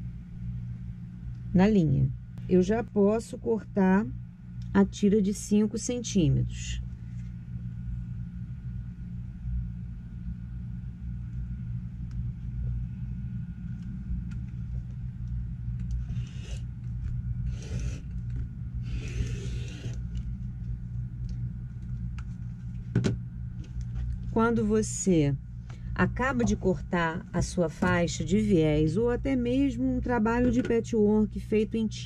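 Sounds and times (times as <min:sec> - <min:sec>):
steady low hum: 0:00.0 - 0:32.0
rotary cutter scraping through fabric: 0:15.9 - 0:16.7, 0:17.4 - 0:18.2, 0:18.8 - 0:20.1.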